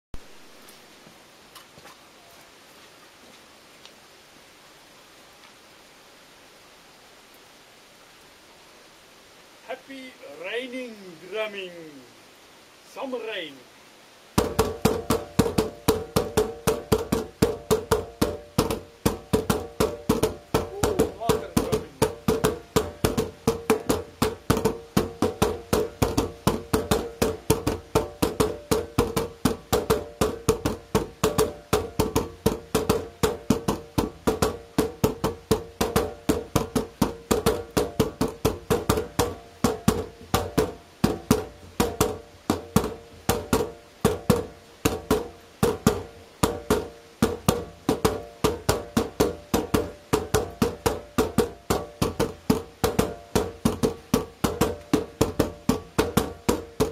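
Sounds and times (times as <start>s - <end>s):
wooden sticks knocking on plastic lids: 14.4s - 56.9s.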